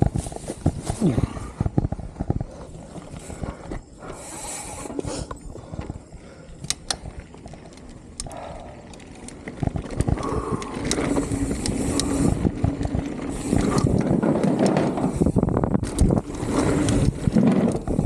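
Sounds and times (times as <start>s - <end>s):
bike clacking and rattling: 4.8s - 18.0s.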